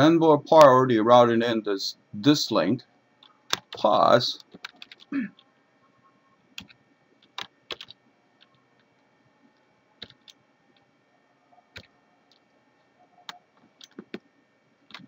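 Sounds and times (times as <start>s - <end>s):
keyboard keystrokes: 4.4s - 5.1s, 7.4s - 7.9s, 13.3s - 14.2s.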